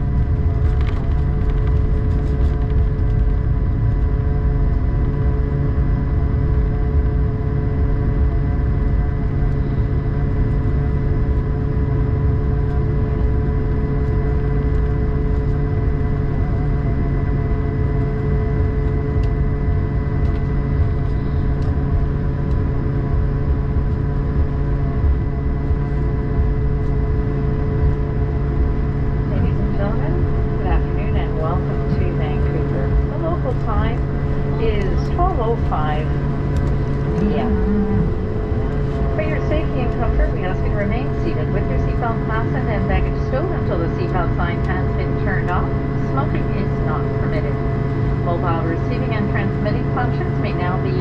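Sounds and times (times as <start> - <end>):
jet engine whine: 0.0 - 51.0
low cabin rumble: 0.0 - 51.0.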